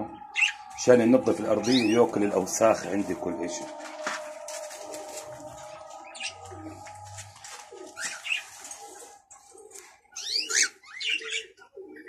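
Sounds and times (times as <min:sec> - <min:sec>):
small birds chirping: 0:00.0 - 0:02.8, 0:05.6 - 0:12.0
doves cooing: 0:00.0 - 0:12.0.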